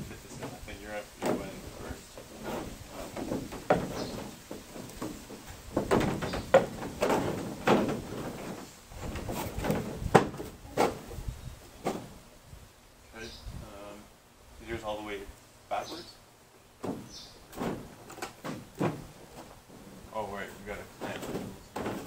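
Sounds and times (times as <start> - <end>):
wood knocking on canoe hull: 2.5 - 11.0.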